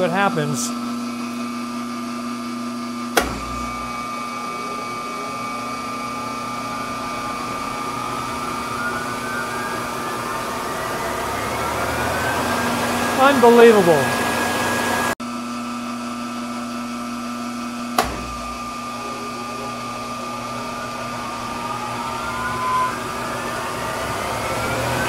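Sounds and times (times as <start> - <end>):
phase converter electrical hum: 0.0 - 15.2, 15.8 - 25.0
motor whine rising in pitch: 0.0 - 25.0.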